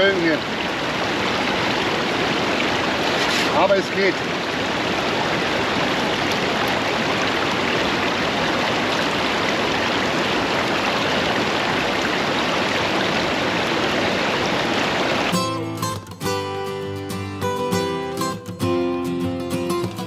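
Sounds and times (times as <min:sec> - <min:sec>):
stream water rushing: 0:00.0 - 0:20.0
acoustic guitar music: 0:15.3 - 0:20.0.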